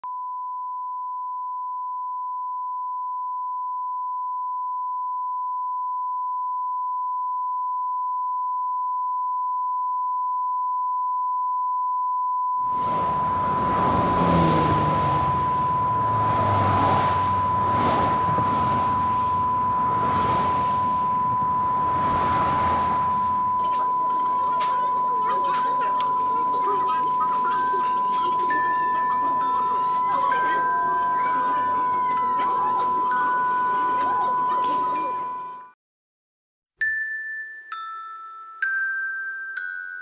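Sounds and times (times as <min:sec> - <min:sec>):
steady electronic tone: 0:12.6 - 0:35.7
loud rushing noise: 0:12.7 - 0:24.4.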